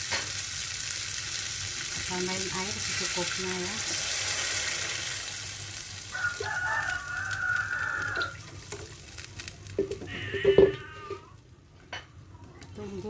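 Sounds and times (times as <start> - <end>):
water sizzling in hot pan: 0.0 - 13.0
rooster crowing: 6.1 - 8.4.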